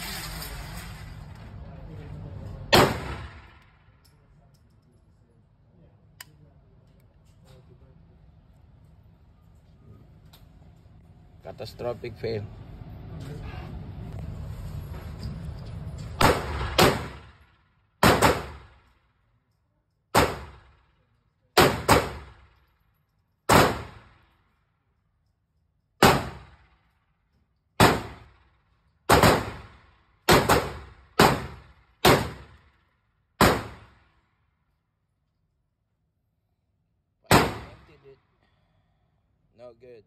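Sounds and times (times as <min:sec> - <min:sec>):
pistol shots echoing indoors: 0:16.2 - 0:19.0, 0:37.3 - 0:37.9.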